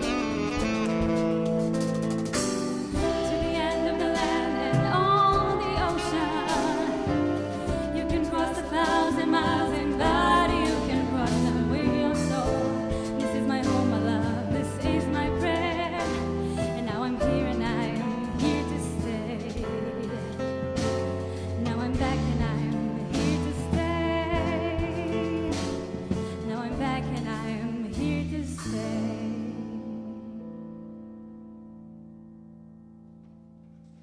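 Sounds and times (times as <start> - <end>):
alto saxophone: 0.0 - 26.6
drums: 0.0 - 30.7
electric bass: 0.0 - 32.4
piano: 0.0 - 34.0
women singing with vibrato: 3.0 - 20.0.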